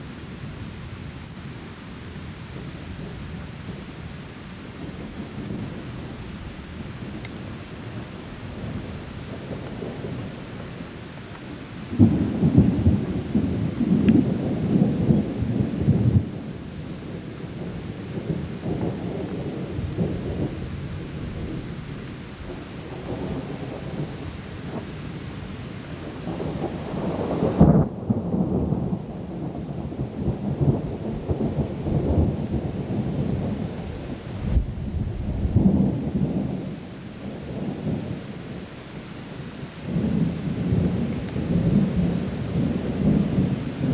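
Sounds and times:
steady rain: 0.0 - 43.9
thunder rolling: 11.9 - 16.4, 26.2 - 38.1, 39.9 - 43.9.

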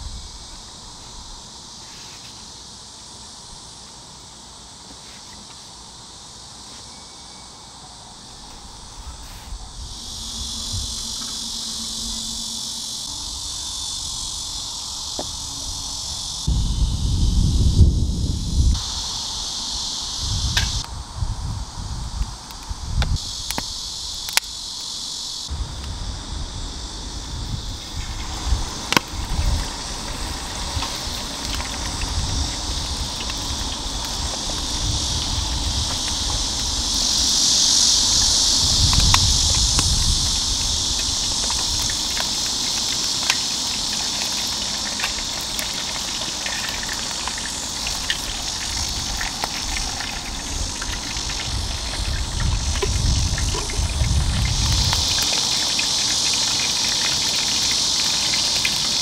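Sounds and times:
hot oil sizzling: 9.6 - 59.0
oil popping: 27.8 - 37.2, 38.8 - 59.0.

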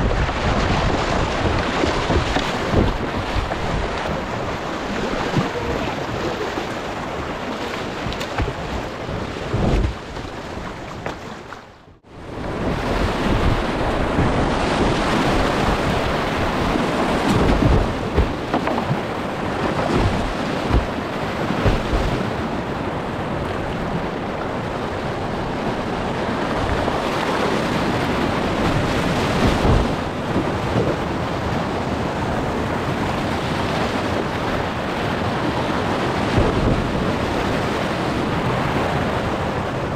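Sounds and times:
whitewater rushing: 0.0 - 11.3, 12.4 - 34.6
paddle strokes splashing: 0.0 - 11.8, 12.7 - 24.0, 26.6 - 32.3
water buffeting microphone: 0.0 - 39.9.

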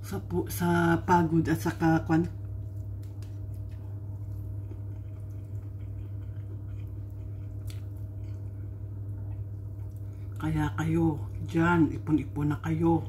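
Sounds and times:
low hum: 0.0 - 13.0
chewing: 2.7 - 10.4.

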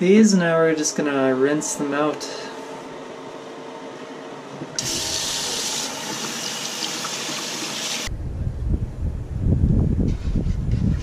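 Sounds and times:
tap water running: 4.8 - 8.1
low rumble: 8.1 - 11.0.

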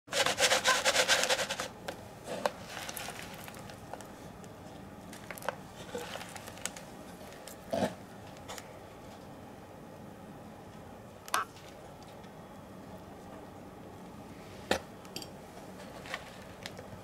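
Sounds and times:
worms rustling in plastic tub: 2.5 - 4.2, 5.1 - 7.6.

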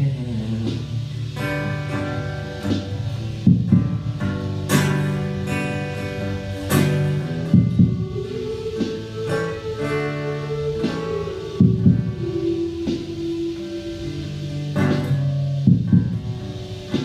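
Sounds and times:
acoustic guitar strumming: 0.0 - 17.0.

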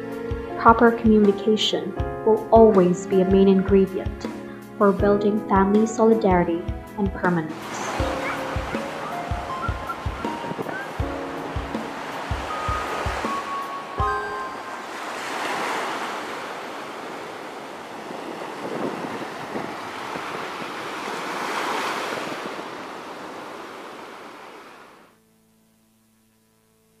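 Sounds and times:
wind on microphone: 7.5 - 13.9, 14.9 - 23.7
surf washing onto beach: 7.5 - 25.1.

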